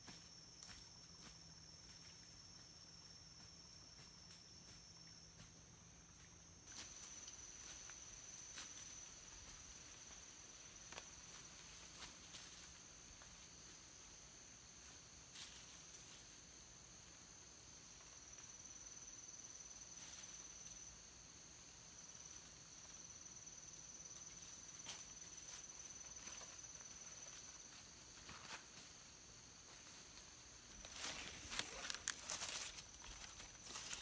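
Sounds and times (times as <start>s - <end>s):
high-pitched insect trill: 0.0s - 34.0s
footsteps on dry leaves: 30.7s - 34.0s.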